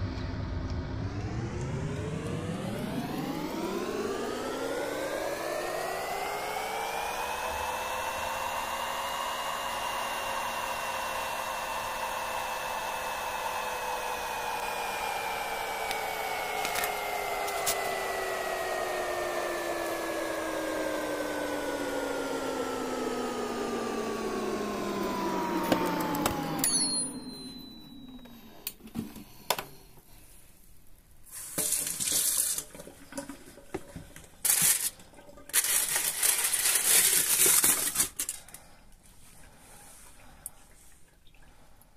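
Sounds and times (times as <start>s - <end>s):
air fryer fan whine: 0.0s - 29.7s, 34.4s - 38.7s
clicks: 25.0s - 29.7s.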